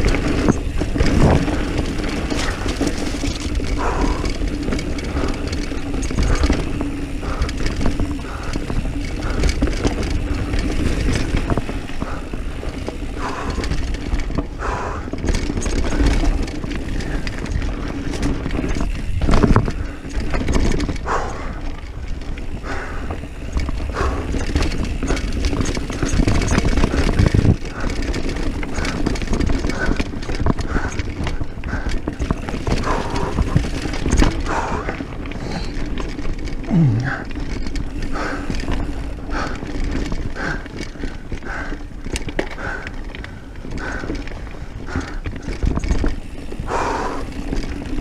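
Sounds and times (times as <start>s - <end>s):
wind rush on microphone: 0.0s - 13.6s, 16.3s - 27.8s
bike chain and frame rattling: 0.0s - 48.0s
tyres running over dirt: 0.0s - 48.0s.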